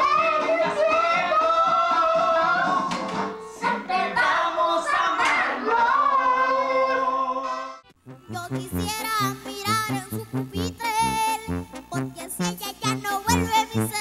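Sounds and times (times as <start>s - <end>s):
boy singing into a microphone: 3.6s - 7.3s.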